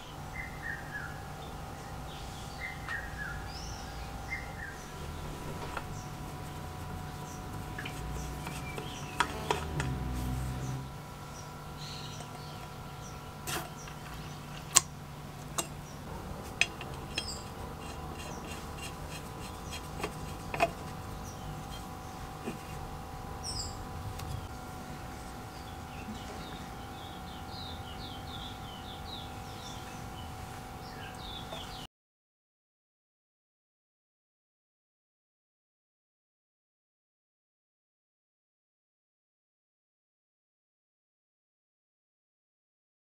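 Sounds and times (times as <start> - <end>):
birds chirping: 0.0 - 31.9
low rumble: 9.1 - 11.2.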